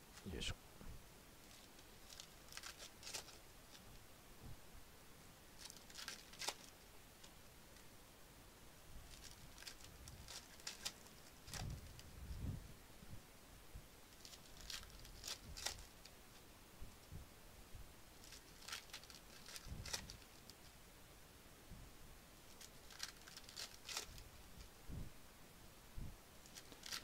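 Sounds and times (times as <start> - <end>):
foil wrappers crinkling: 1.5 - 3.8, 5.6 - 6.7, 9.1 - 12.0, 14.2 - 16.0, 18.2 - 20.5, 22.5 - 24.3, 26.4 - 27.0.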